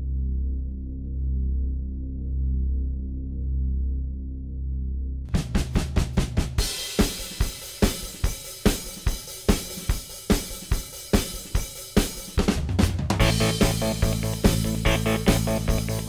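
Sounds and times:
drum kit beat: 5.3 - 16.0.

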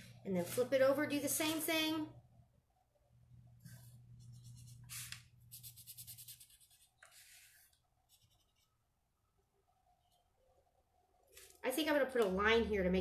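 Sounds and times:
marker scribbling on paper: 4.2 - 8.7.

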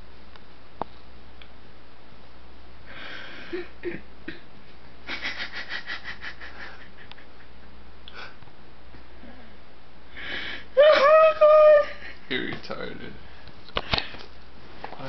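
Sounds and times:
person wheezing: 2.9 - 4.4.

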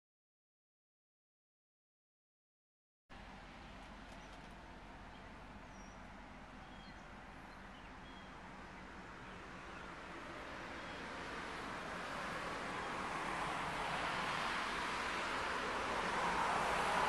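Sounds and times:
thin bird chirps: 5.1 - 8.4.

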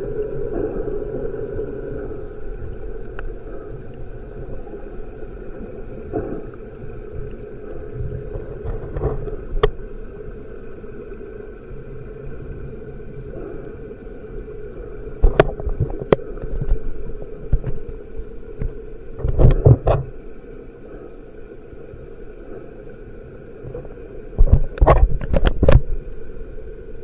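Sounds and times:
underwater low hum: 0.0 - 27.0
underwater knocks and clicks: 6.0 - 10.5, 15.1 - 20.2, 23.7 - 26.1.

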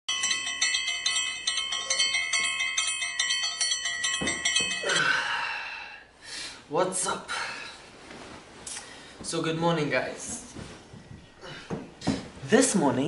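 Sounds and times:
bell-like alarm ringtone: 0.1 - 5.5
bedding rustling: 0.2 - 4.8, 6.9 - 12.9.

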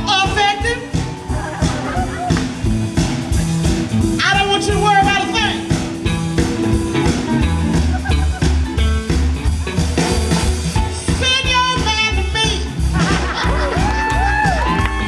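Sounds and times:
electric guitar: 0.0 - 11.8
bass line: 0.0 - 15.0
drums: 0.0 - 15.0.

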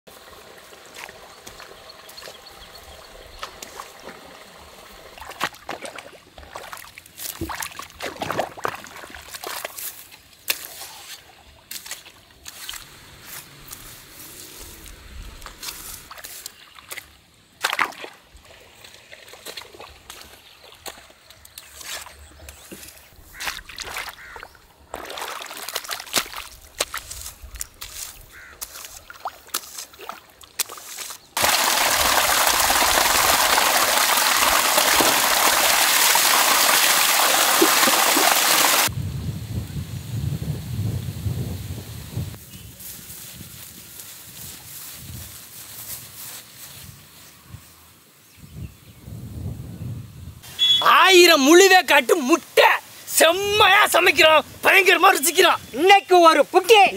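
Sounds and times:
water trickling and sloshing: 0.1 - 12.8, 15.4 - 22.2, 22.8 - 38.9
hoe splashing into wet mud: 5.2 - 9.9, 17.6 - 18.2, 24.9 - 27.3, 28.6 - 38.9.

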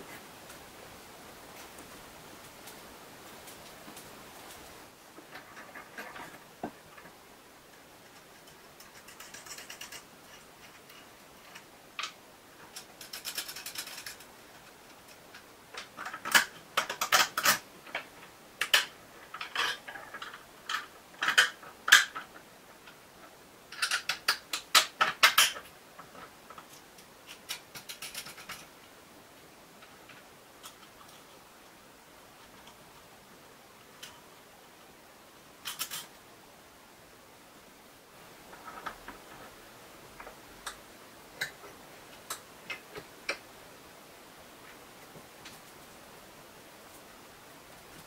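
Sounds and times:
small metal parts clicking and clinking: 8.1 - 17.6, 18.6 - 22.4, 23.7 - 28.7, 35.6 - 36.2.

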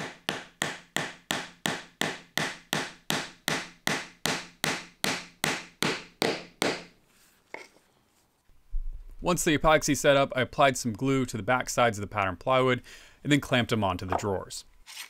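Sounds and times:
hammer tapping on plywood: 0.0 - 6.9.

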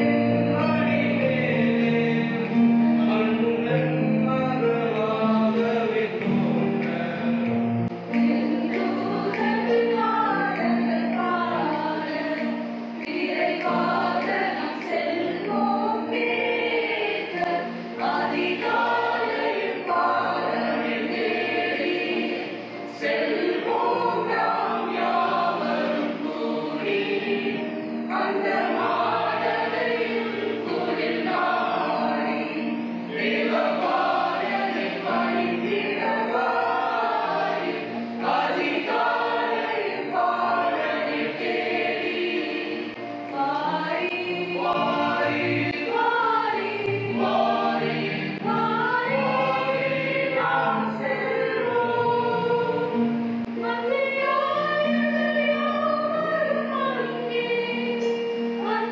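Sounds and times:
choir singing a carol: 0.0 - 58.9.

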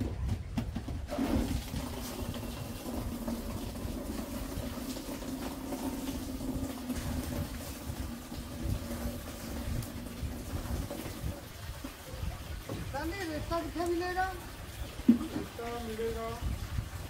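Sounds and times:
water running into bucket: 0.9 - 17.0.

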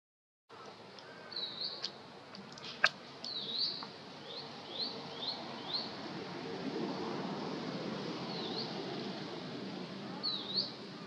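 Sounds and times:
bird chirping: 0.6 - 1.9, 2.5 - 6.0.

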